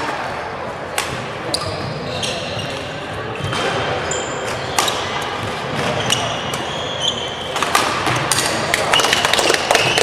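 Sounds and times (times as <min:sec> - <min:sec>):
sneakers squeaking on floor: 0:01.1 - 0:10.0
rackets striking shuttlecock: 0:07.4 - 0:10.0.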